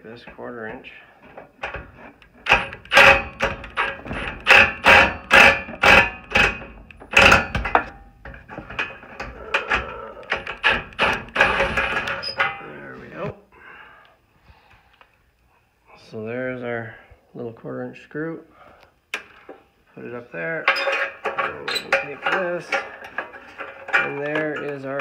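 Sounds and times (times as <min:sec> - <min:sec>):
metallic knocks with ringing: 0:02.4 - 0:12.6.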